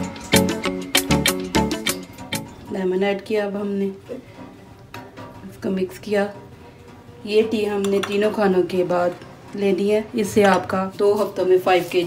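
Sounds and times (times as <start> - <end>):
quick pitched music notes: 0.0 - 2.7.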